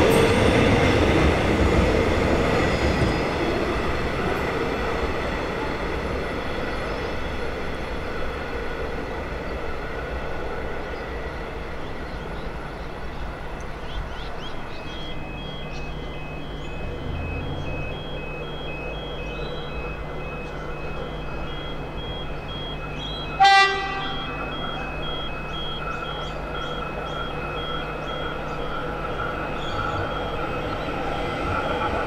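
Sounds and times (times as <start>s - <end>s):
electric train approaching: 0.0s - 32.0s
train horn blast: 23.3s - 24.6s.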